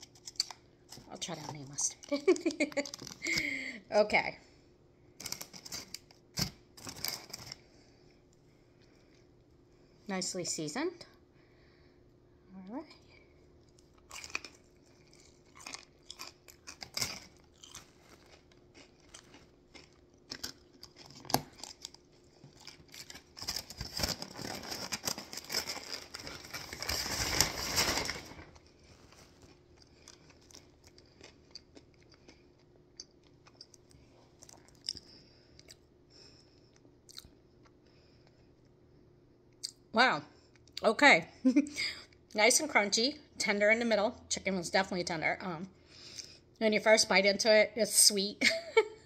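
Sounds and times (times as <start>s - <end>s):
crunchy chewing: 13.6s - 26.8s, 28.6s - 35.8s.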